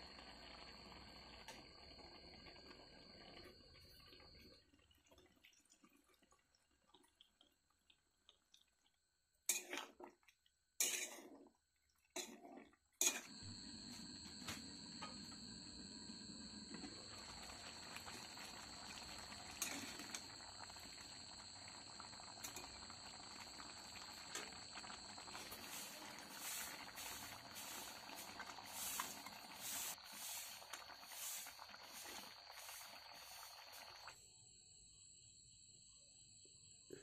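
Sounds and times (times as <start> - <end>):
curry simmering and bubbling: 0.0 - 34.2
ladle scraping and stirring: 9.5 - 11.5, 12.1 - 13.4.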